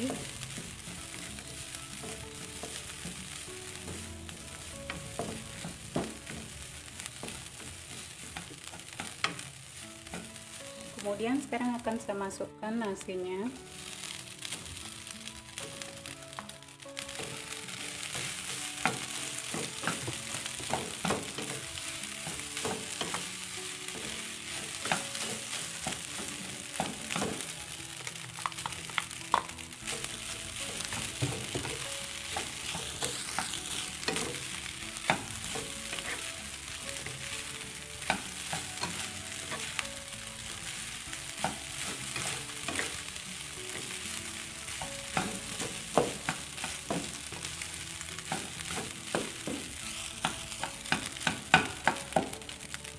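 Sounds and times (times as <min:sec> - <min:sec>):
spatula scraping and tapping pan: 0:00.0 - 0:10.4
rice sizzling in a wok: 0:00.0 - 0:52.9.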